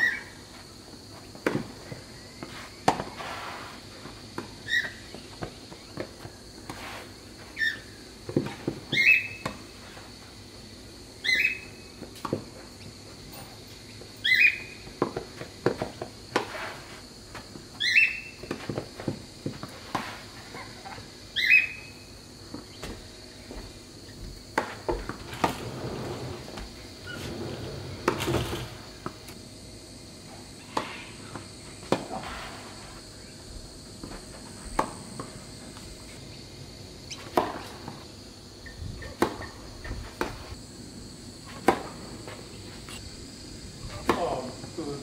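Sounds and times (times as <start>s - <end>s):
high insect drone: 0.0s - 45.0s
tennis balls struck by racquets: 37.1s - 38.0s, 39.2s - 39.5s, 41.5s - 42.1s, 43.9s - 44.6s.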